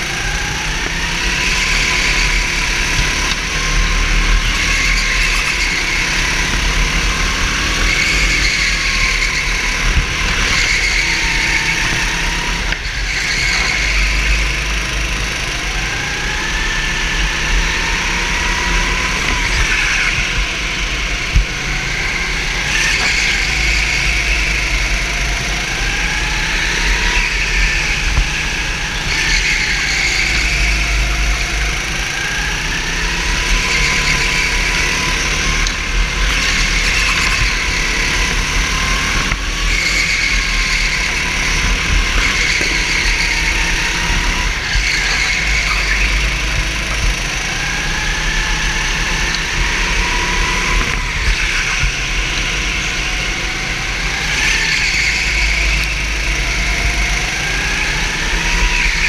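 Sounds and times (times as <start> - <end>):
go-kart engine accelerating: 0.0 - 59.0.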